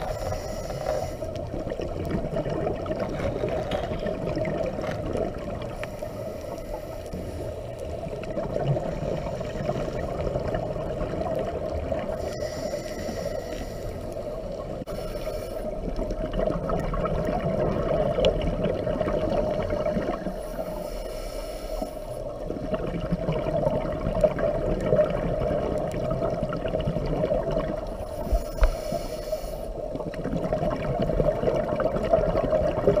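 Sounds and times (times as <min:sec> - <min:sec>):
regulator bubbles gurgling: 0:00.0 - 0:15.0, 0:15.6 - 0:20.8, 0:22.2 - 0:29.0, 0:29.7 - 0:33.0
muffled underwater camera hum: 0:00.0 - 0:33.0.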